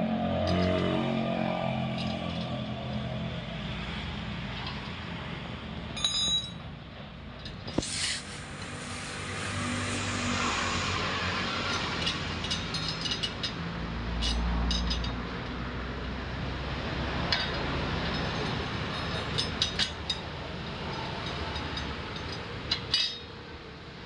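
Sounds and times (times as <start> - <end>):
vehicle engines passing: 0.0 - 24.0
metallic clinks of bolts: 6.0 - 6.6, 21.3 - 23.3.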